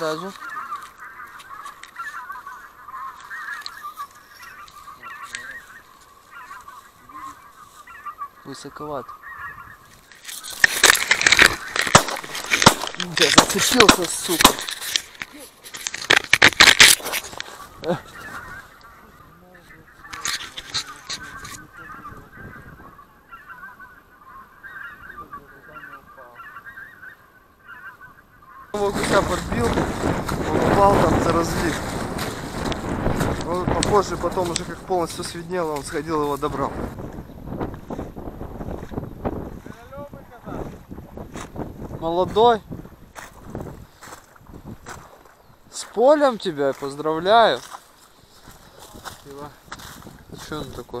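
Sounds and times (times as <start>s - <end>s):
geese yelping calls: 0.0s - 40.8s
sharp knocks: 10.6s - 15.1s.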